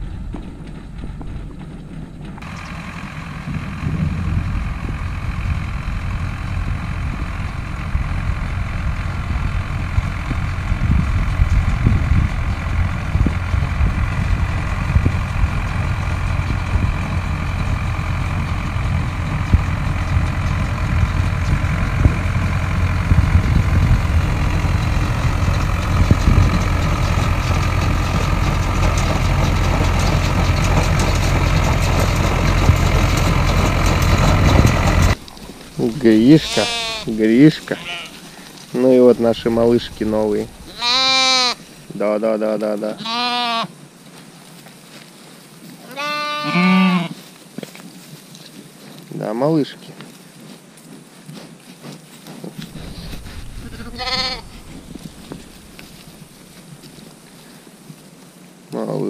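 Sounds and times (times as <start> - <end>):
baler mechanical clatter: 0.0 - 37.6, 38.8 - 40.7, 52.6 - 56.8
tractor diesel engine under load: 0.0 - 42.9, 52.5 - 57.7.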